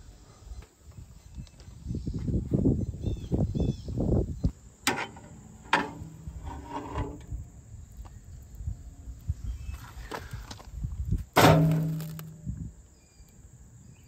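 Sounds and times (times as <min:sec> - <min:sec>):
sharp metal clanks: 0:11.4 - 0:12.4.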